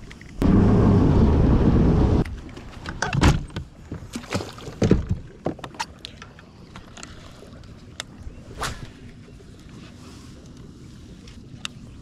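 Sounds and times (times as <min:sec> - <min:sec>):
knocks and clunks on boat: 0:02.2 - 0:07.2.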